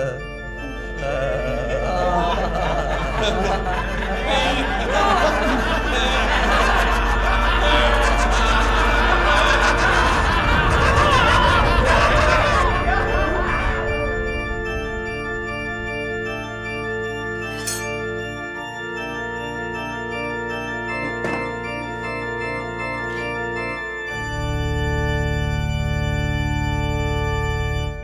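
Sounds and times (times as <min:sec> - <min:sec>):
organ chords: 0:00.0 - 0:28.0.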